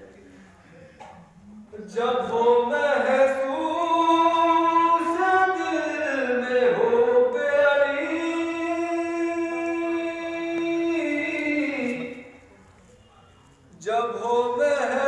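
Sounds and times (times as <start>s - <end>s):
man singing unaccompanied: 1.4s - 12.5s, 13.8s - 15.0s.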